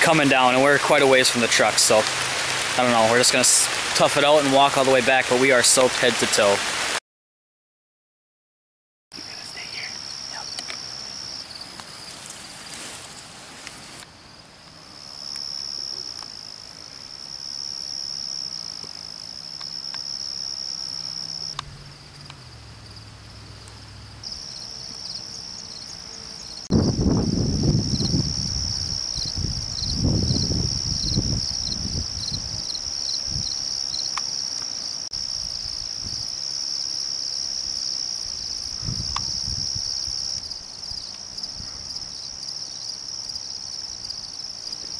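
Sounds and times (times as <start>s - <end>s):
insect chorus trilling: 9.2s - 44.9s.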